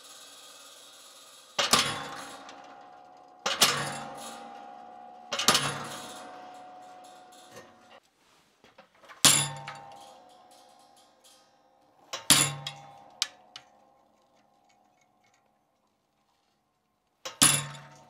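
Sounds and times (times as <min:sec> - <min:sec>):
hammer striking steel stamp: 0:01.6 - 0:08.0, 0:12.1 - 0:13.7, 0:17.3 - 0:18.0.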